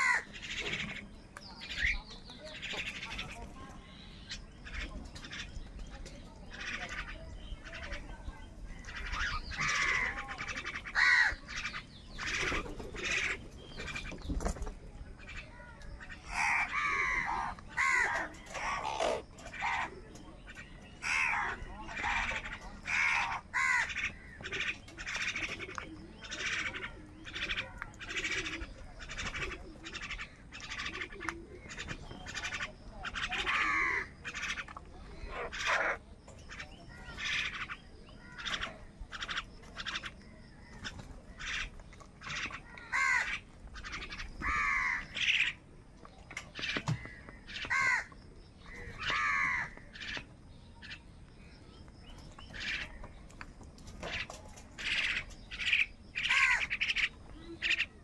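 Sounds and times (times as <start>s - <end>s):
crows cawing: 0.0s - 1.0s, 8.9s - 14.1s, 15.3s - 20.0s, 21.0s - 34.6s, 35.2s - 45.6s, 46.6s - 50.2s, 54.0s - 57.9s.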